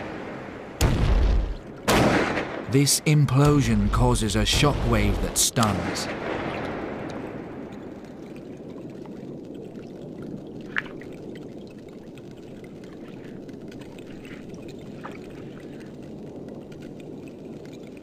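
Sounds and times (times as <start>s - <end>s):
underwater water wash: 0.0s - 18.0s
faint clicks: 5.6s - 18.0s.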